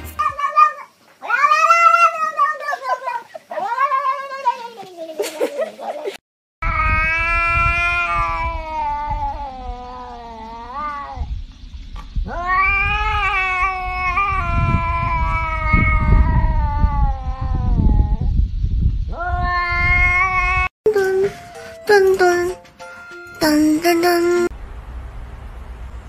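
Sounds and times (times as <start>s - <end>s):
cat yowling: 0.2s - 4.6s, 6.6s - 11.3s, 12.3s - 18.3s, 19.1s - 20.7s
low rumbling noise: 24.4s - 26.0s.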